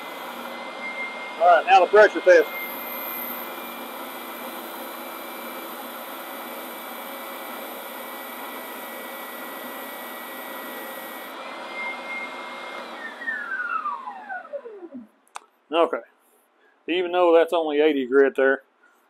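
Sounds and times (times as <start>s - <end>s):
spindle sander running: 0.0s - 15.0s.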